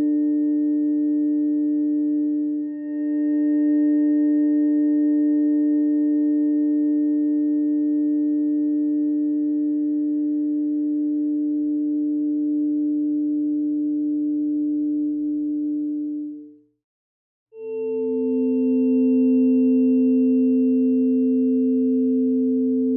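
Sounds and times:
sustained electronic sine tones: 17.6s - 22.9s.

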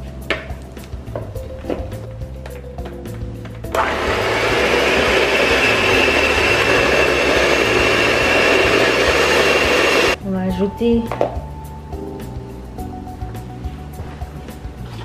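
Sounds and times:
electric hand mixer whining: 3.7s - 10.2s.

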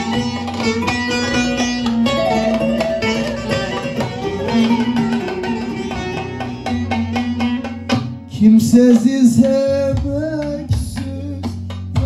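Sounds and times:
long-necked lute plucked fast: 0.0s - 9.8s
electronic keyboard accompaniment: 1.2s - 7.0s.

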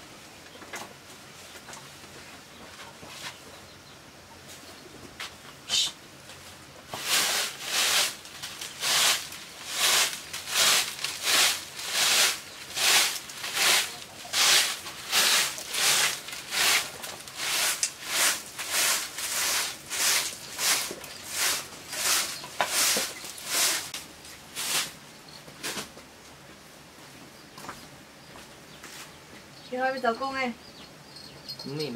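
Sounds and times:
broom sweeping a dirt floor: 1.4s - 3.5s, 4.4s - 26.0s, 28.8s - 29.2s.

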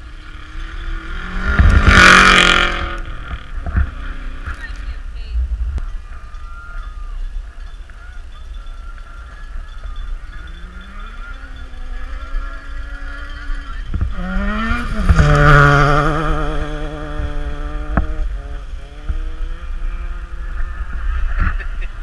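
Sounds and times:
car driving past: 10.6s - 21.5s.

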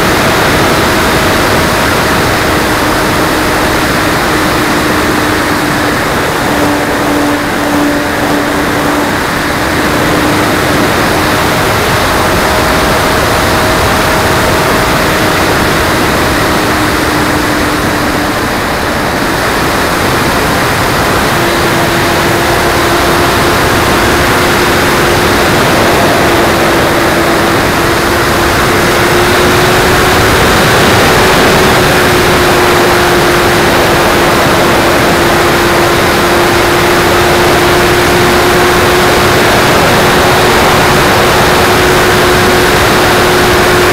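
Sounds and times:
electric motor and propeller whine: 0.0s - 43.9s
wind rushing over microphone: 0.0s - 43.9s.

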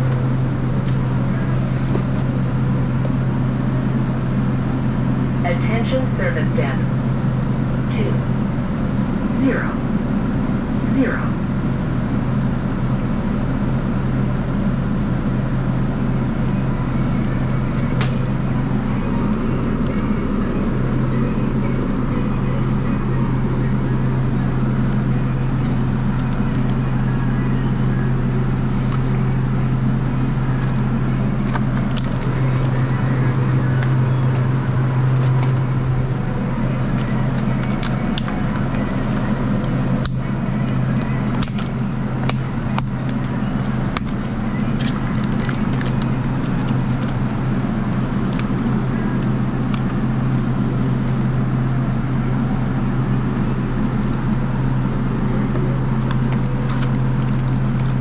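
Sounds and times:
refrigeration machinery hum: 0.0s - 58.0s
plastic egg cartons crackling: 30.6s - 35.8s, 36.8s - 51.3s, 55.9s - 58.0s.

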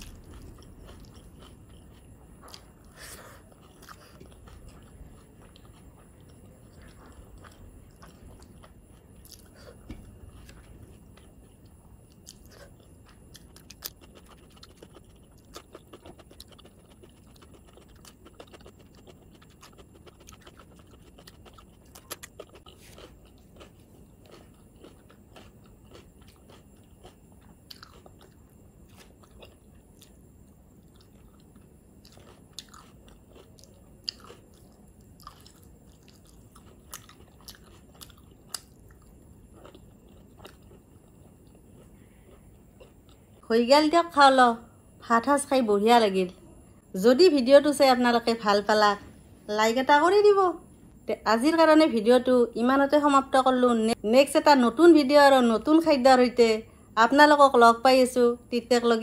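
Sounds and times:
person chewing food: 0.0s - 43.4s.

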